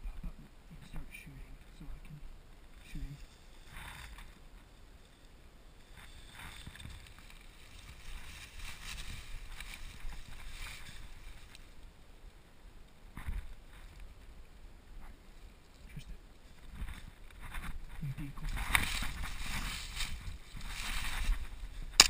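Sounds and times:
dry leaves rustling and crunching: 5.8 - 11.9, 18.4 - 22.0.

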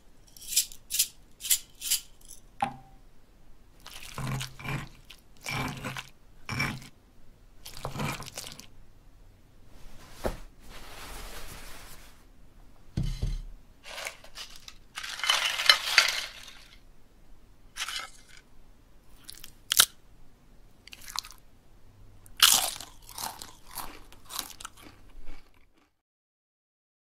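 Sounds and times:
chips crunching: 3.8 - 6.9, 7.6 - 8.7, 13.8 - 16.8, 17.8 - 18.4, 19.2 - 20.0, 20.9 - 21.4, 22.3 - 25.9.

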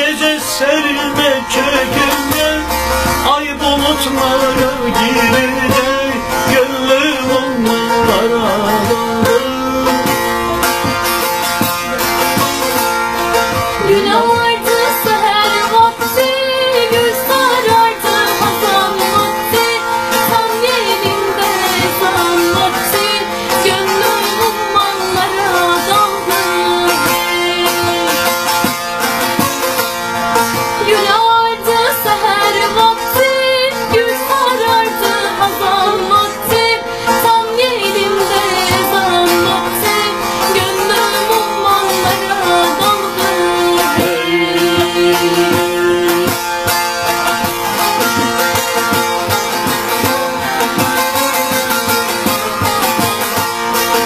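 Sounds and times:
folk band with steady beat: 0.0 - 54.0
plucked string melody: 0.0 - 54.0.

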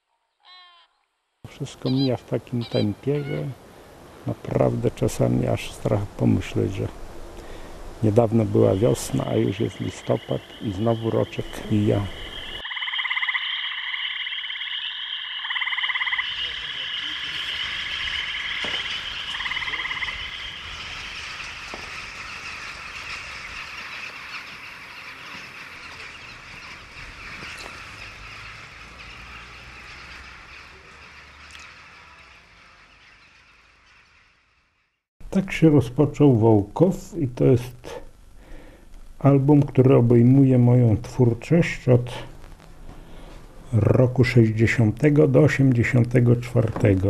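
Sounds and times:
frogs croaking: 1.5 - 34.9
high-pitched frog chorus: 8.6 - 34.2.

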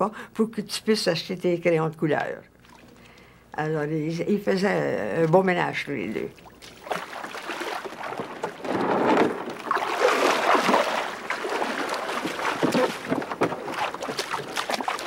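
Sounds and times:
water splashing against a canoe: 6.3 - 15.0.

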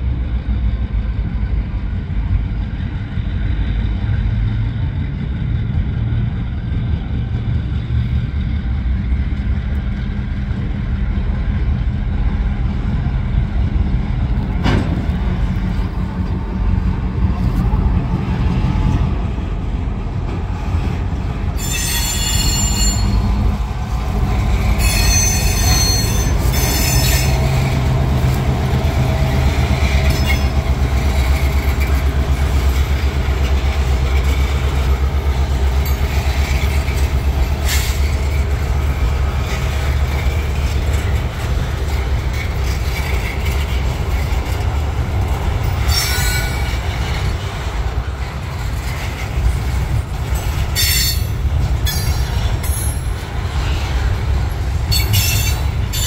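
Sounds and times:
diesel locomotive engine drone: 0.0 - 56.0
high-pitched squeals: 21.6 - 23.5, 24.7 - 27.6.

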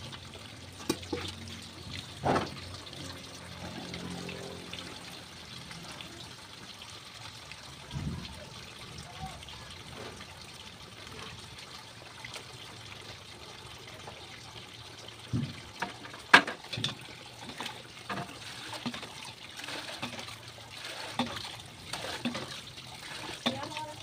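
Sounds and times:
water trickling into steel basin: 0.0 - 24.0
dipper clunking against basin: 15.3 - 23.8.

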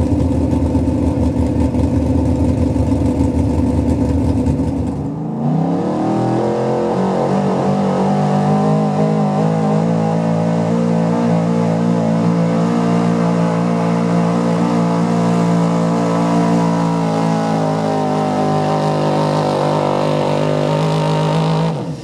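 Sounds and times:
pickup engine at high revs: 0.0 - 22.0.

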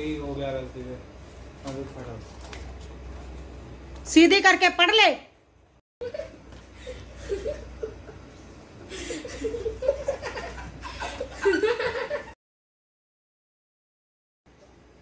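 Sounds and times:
children giggling: 6.0 - 12.4.

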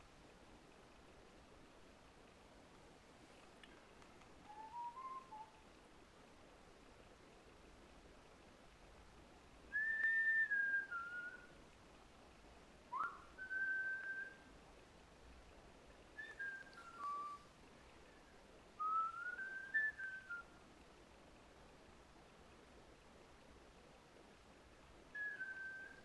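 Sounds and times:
person whistling: 4.5 - 5.5, 9.7 - 11.4, 13.0 - 14.4, 16.2 - 17.4.

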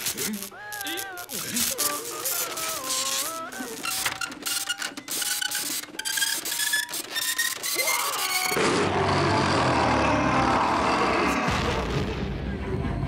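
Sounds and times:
cartoon printer clattering: 0.0 - 8.6
loud rough noise: 2.6 - 12.2.

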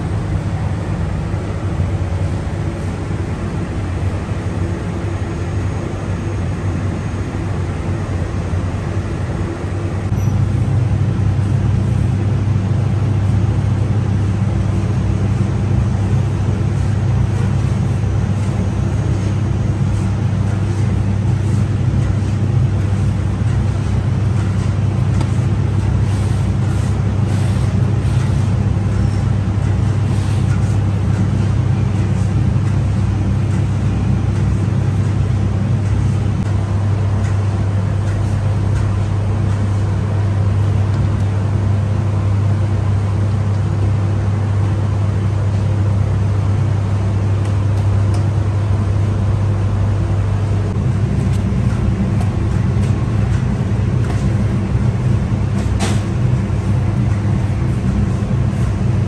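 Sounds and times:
oven machine hum and roar: 0.0 - 59.0.

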